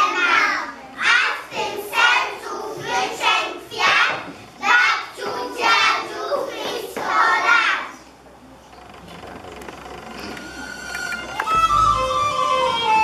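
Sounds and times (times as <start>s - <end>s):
young children singing: 0.0s - 8.1s.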